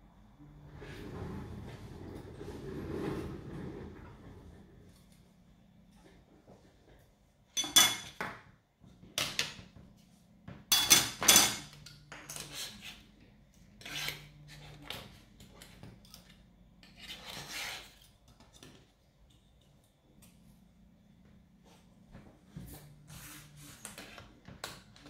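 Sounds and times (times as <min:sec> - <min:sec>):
tools scraping and rubbing: 0:12.2 - 0:18.8.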